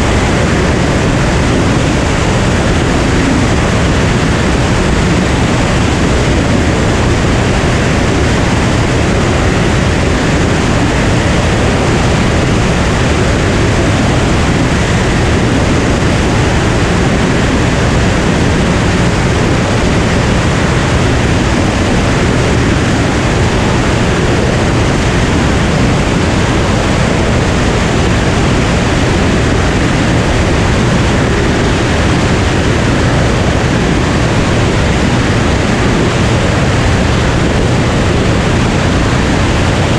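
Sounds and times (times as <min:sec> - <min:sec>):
aircraft engine and propeller: 0:00.0 - 0:39.9.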